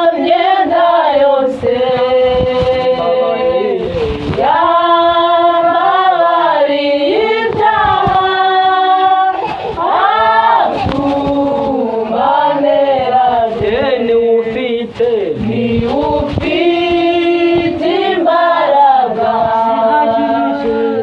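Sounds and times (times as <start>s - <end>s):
group singing gospel song: 0.0s - 21.0s.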